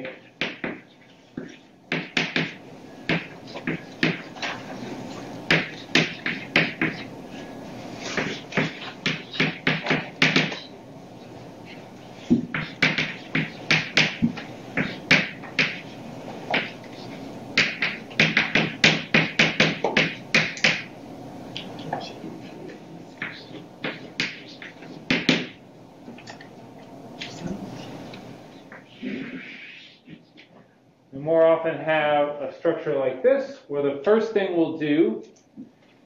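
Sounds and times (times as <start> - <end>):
chalk writing on blackboard: 0.4 - 7.1, 7.8 - 10.7, 11.6 - 20.9, 23.2 - 25.5.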